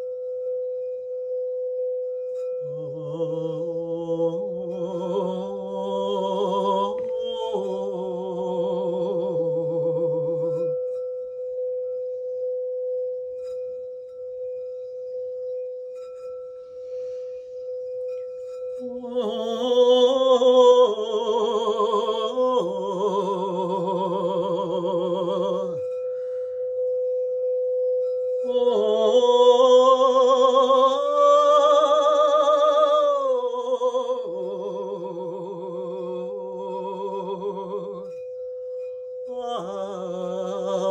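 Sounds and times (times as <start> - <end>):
singing bowl ringing: 0.0 - 40.9
wordless singing: 2.6 - 10.8, 18.8 - 26.0, 28.5 - 38.2, 39.3 - 40.9.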